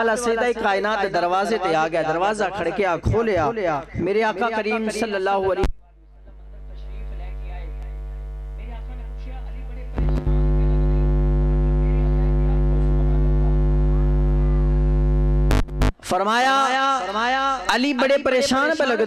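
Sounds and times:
electrical mains hum: 0:03.2 - 0:16.0.

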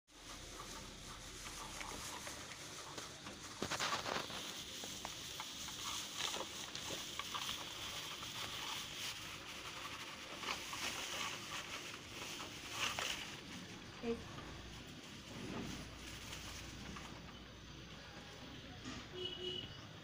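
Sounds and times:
straw rustling and crackling: 0:00.1 - 0:18.2.

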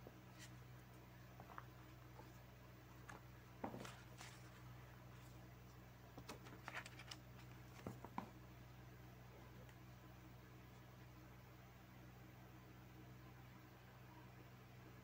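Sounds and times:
low steady hum: 0:00.0 - 0:15.0
book rustles and taps: 0:03.0 - 0:04.6, 0:06.2 - 0:08.4.

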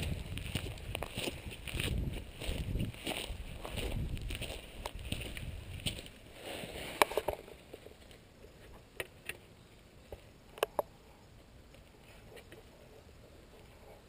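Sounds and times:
wind rumble on microphone: 0:00.0 - 0:06.1.

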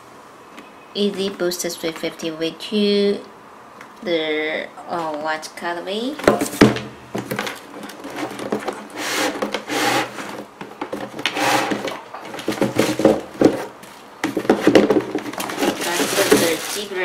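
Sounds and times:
cardboard rubbing swishes: 0:08.0 - 0:10.5, 0:15.4 - 0:17.0
shoes knocking against box: 0:12.4 - 0:16.6.

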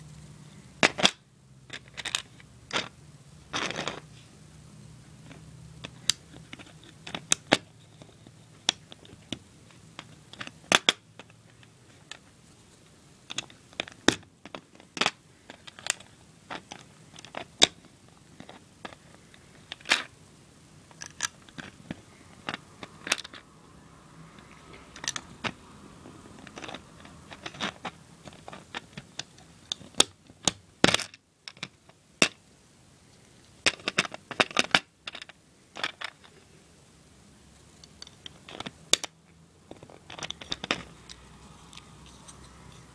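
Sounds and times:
plastic bricks clicking: 0:05.3 - 0:12.2, 0:13.3 - 0:20.1, 0:20.9 - 0:23.4, 0:24.9 - 0:25.6, 0:26.4 - 0:32.4, 0:33.6 - 0:36.4, 0:37.8 - 0:41.9.

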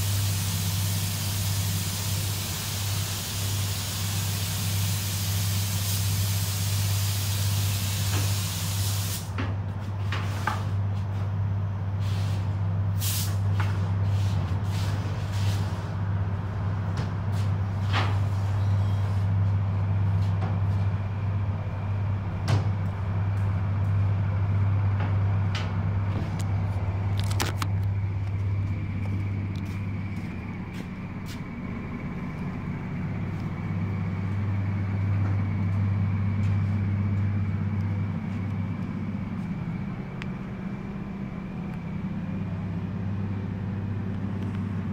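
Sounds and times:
air spray gun hissing: 0:00.0 - 0:09.3, 0:13.0 - 0:13.4
spray booth low hum: 0:00.0 - 0:44.9.

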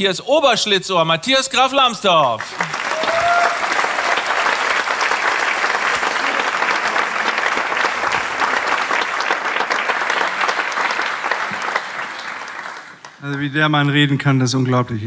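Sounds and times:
audience applauding: 0:02.2 - 0:13.8.

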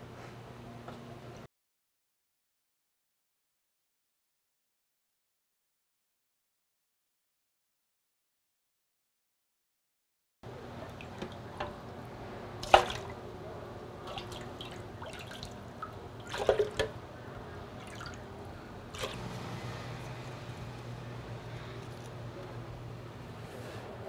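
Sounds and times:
steady low hum: 0:10.5 - 0:24.0.

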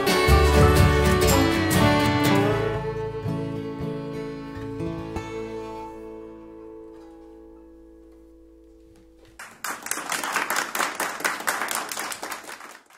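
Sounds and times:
group clapping: 0:09.4 - 0:12.9.

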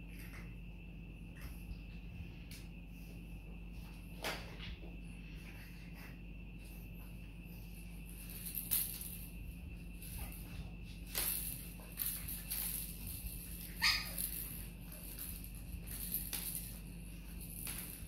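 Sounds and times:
steady low hum: 0:00.0 - 0:18.0
puppy yelp: 0:13.7 - 0:14.3.

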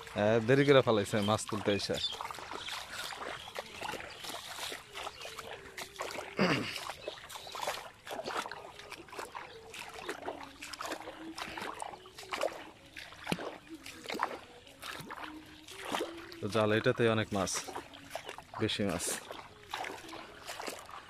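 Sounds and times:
feet wading through water: 0:00.0 - 0:21.0.

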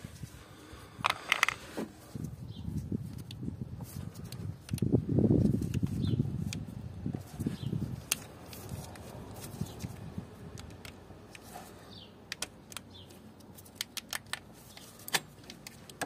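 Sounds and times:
plastic clicks: 0:12.3 - 0:16.0.

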